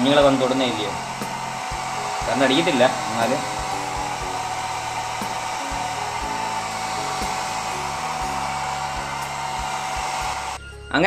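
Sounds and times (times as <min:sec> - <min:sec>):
hair dryer running: 0:00.0 - 0:10.7.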